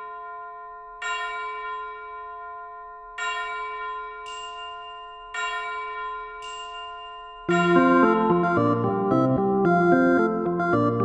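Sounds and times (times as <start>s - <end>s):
slow bell-like chimes: 0.0s - 8.8s
high shimmer: 7.5s - 8.8s.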